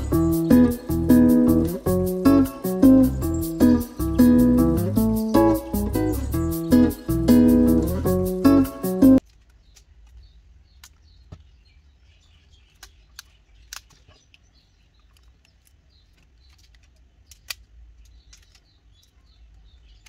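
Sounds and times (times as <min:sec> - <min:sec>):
light clicks and snaps: 0:12.7 - 0:14.4, 0:15.0 - 0:19.2.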